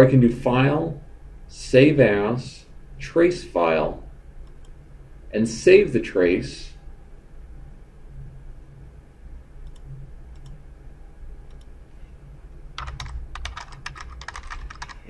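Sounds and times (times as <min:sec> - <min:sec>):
typing on keyboard: 0:12.8 - 0:15.0.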